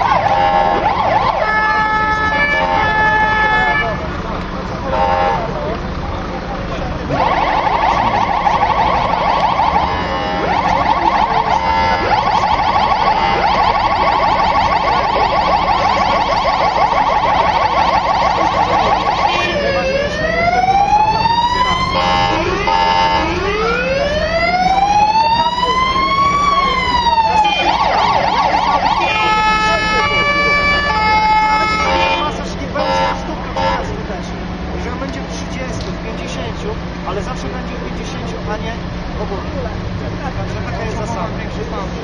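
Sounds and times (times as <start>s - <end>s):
electronic emergency siren: 0.0s - 4.0s, 7.1s - 33.9s.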